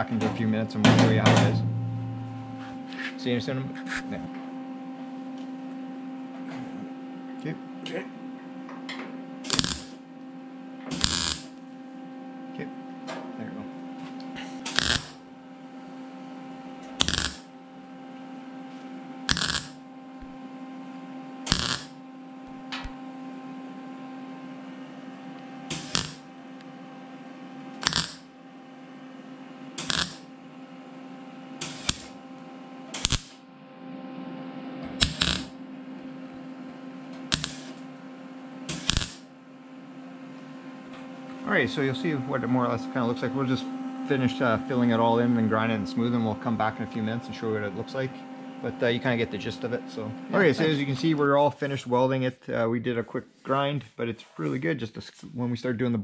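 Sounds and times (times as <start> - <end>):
steady hum: 0.0 - 56.0
welder bursts: 9.4 - 10.0, 10.9 - 11.6, 14.6 - 15.2, 17.0 - 17.5, 19.3 - 19.8, 21.4 - 22.0, 25.7 - 26.3, 27.8 - 28.3, 29.8 - 30.3, 31.6 - 32.2, 32.9 - 33.4, 35.0 - 35.6, 37.3 - 37.8, 38.7 - 39.3.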